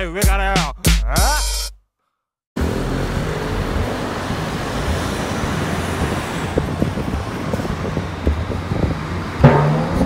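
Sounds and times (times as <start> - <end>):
road traffic hiss and rumble: 2.6 - 10.0.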